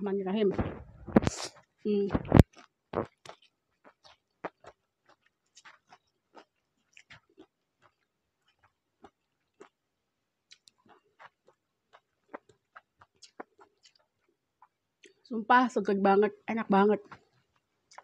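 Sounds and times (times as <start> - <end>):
chewing mouth sounds: 2.4 - 9.8, 10.5 - 15.2, 17.0 - 18.0.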